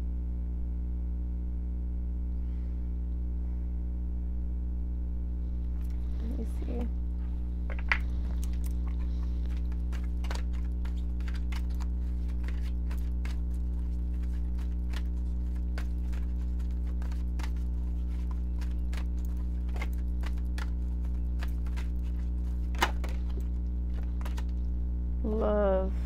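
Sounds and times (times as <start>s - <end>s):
steady low hum: 0.0s - 26.0s
cards clicking and tapping: 7.6s - 24.6s.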